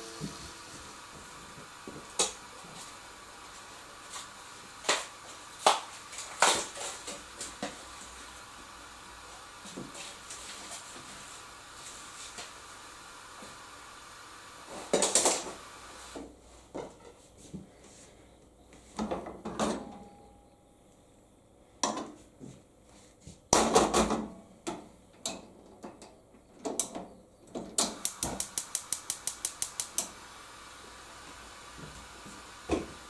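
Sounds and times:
faint gas hiss: 0.0 - 19.0, 27.8 - 33.0
gas igniter clicks: 27.8 - 30.4.

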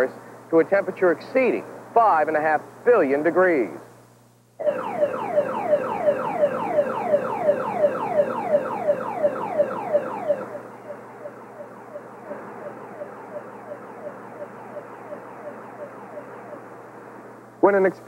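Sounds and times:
steady hum: 0.0 - 18.0
electronic warning alarm falling tone: 4.6 - 17.2.

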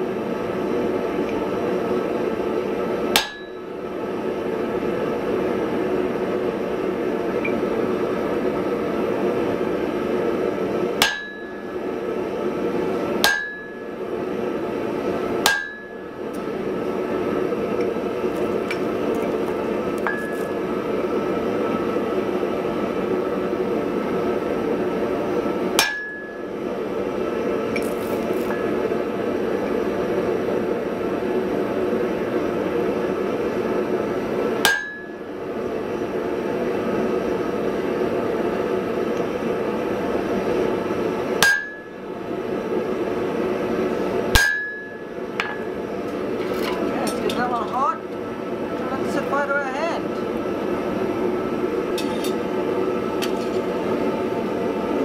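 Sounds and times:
steady roaring hiss: 0.0 - 55.0
hammer blows on hot iron: 3.1 - 3.8, 10.9 - 12.0, 13.0 - 14.4, 15.2 - 16.6, 25.7 - 26.7, 34.6 - 35.4, 41.4 - 42.0, 44.3 - 47.5.

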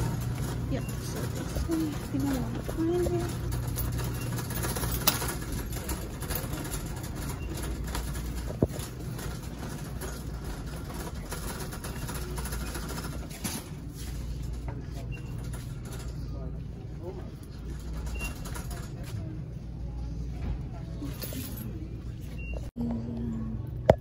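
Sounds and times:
shopping cart rolling: 0.0 - 19.3
low store hum: 0.0 - 24.0.

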